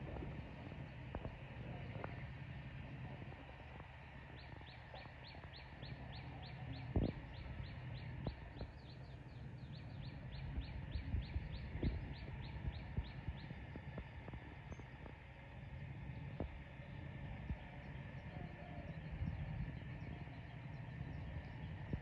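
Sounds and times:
low rumble: 0.0 - 22.0
bird chirping: 4.2 - 15.1.

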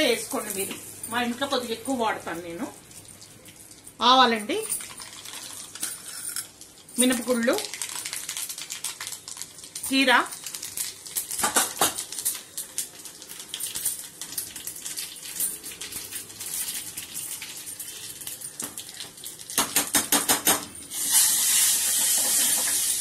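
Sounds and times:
oil sizzling: 0.0 - 20.0, 20.8 - 23.0
seeds crackling and popping in oil: 4.8 - 20.3.

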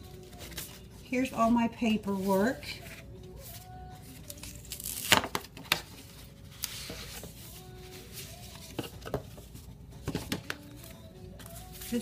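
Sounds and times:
paper envelope rustling: 0.0 - 1.1, 2.1 - 9.6.

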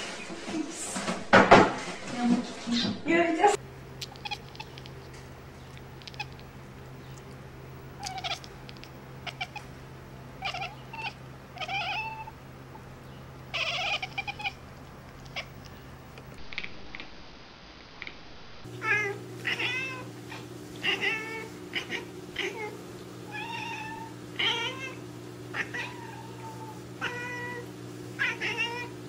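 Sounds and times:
steady low hum: 3.0 - 29.0
cat chirping: 4.0 - 12.4, 13.1 - 16.4, 18.8 - 28.9.

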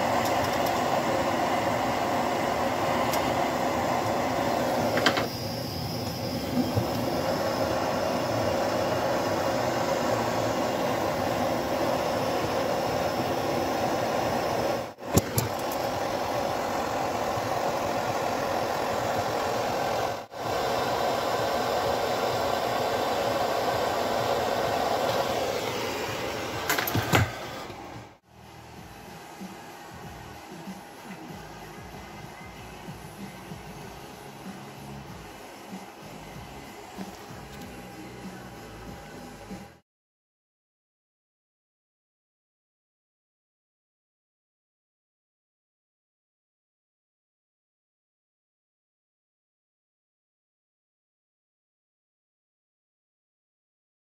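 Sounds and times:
gas torch hissing: 0.0 - 28.2, 28.8 - 39.7.

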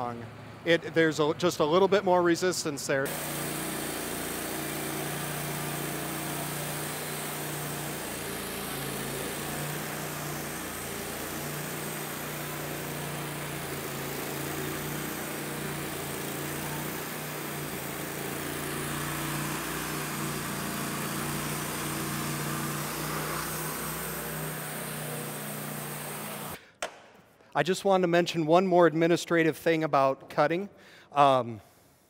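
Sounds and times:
band sawmill cutting a log: 3.0 - 26.6.

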